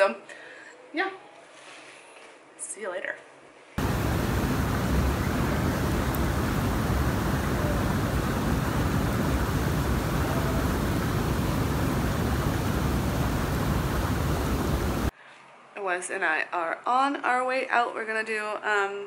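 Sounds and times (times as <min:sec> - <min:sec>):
churning water splashing: 0:03.8 - 0:15.1
water jets pouring: 0:03.8 - 0:15.1.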